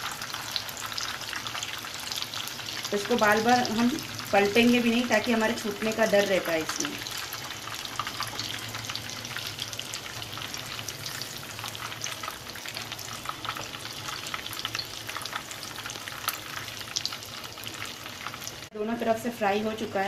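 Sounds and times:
cutlets sizzling in hot oil: 0:00.0 - 0:20.0.

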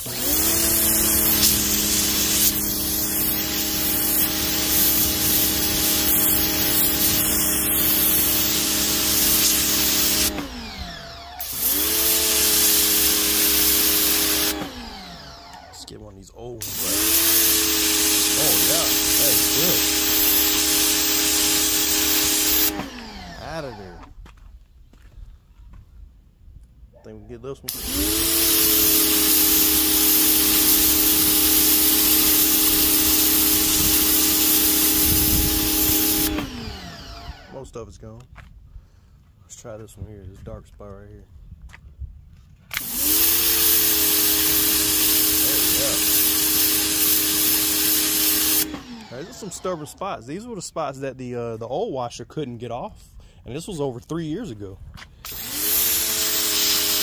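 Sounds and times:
water jet blasting concrete: 0:00.0 - 0:15.8, 0:16.6 - 0:24.0, 0:27.7 - 0:37.6, 0:42.7 - 0:50.2, 0:55.2 - 0:57.0
pressure washer motor humming: 0:00.0 - 0:16.0, 0:16.6 - 0:24.1, 0:27.7 - 0:37.6, 0:42.7 - 0:50.2, 0:55.2 - 0:57.0.

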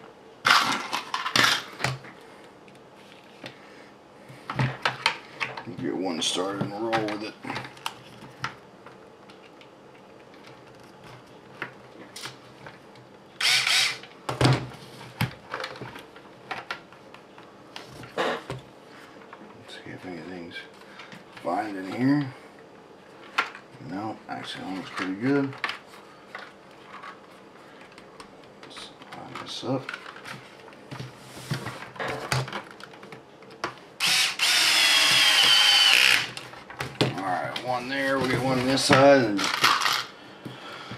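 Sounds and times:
cordless drill driving screw: 0:13.4 - 0:14.0, 0:34.0 - 0:36.3.

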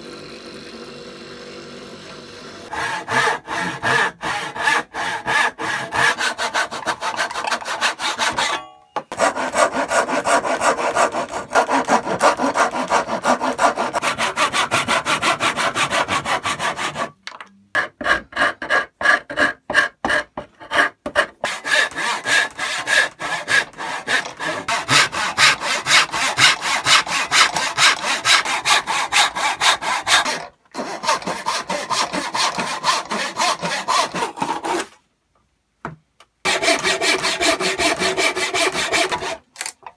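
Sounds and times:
hand saw cutting wood: 0:00.0 - 0:17.2, 0:17.8 - 0:35.0, 0:36.5 - 0:39.5.

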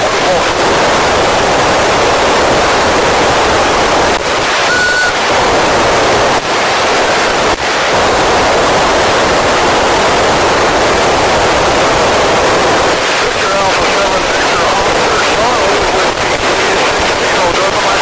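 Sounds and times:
radio receiver hiss: 0:00.0 - 0:18.0
short whistle: 0:04.7 - 0:05.2.

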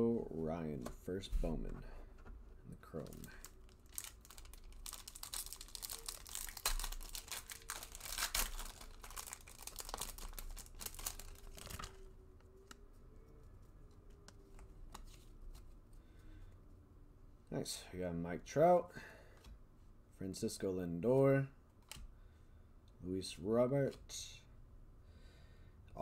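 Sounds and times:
cards rustling: 0:02.8 - 0:12.8
wrapper crackling being torn open: 0:02.9 - 0:12.0.

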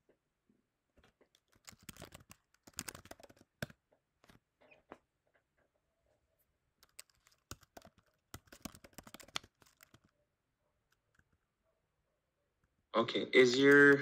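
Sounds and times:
faint keyboard typing: 0:01.0 - 0:05.7, 0:06.8 - 0:11.6, 0:12.6 - 0:14.0.

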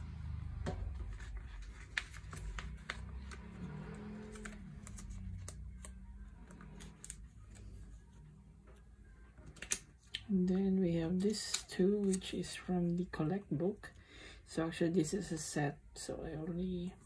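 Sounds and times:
soft background music: 0:00.0 - 0:17.0
plastic sleeves clicking and rustling: 0:01.0 - 0:07.8.

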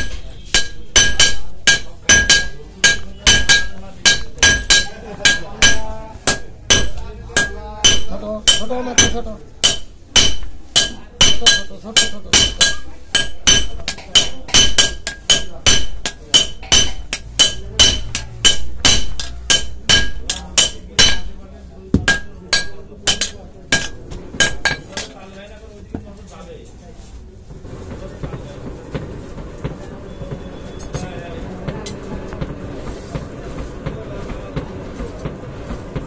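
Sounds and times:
hammer striking metal on anvil: 0:00.0 - 0:25.2.

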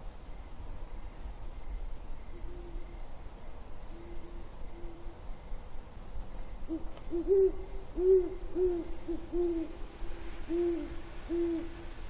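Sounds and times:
owl hooting: 0:02.3 - 0:03.0, 0:03.9 - 0:05.2, 0:06.7 - 0:12.0.

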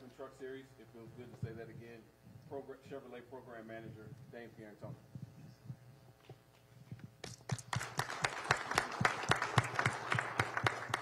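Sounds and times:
audience applauding: 0:07.2 - 0:11.0.

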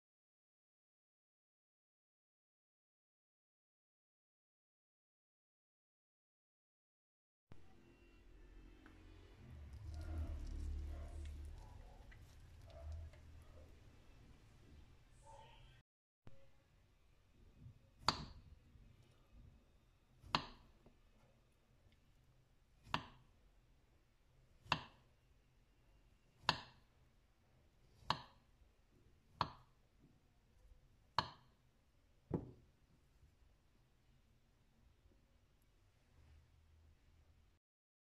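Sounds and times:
knife knocking on cutting board: 0:32.3 - 0:32.6.

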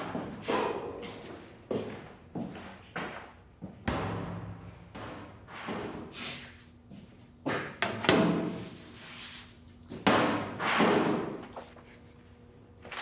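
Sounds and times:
heavy echoing thuds: 0:03.8 - 0:05.5.

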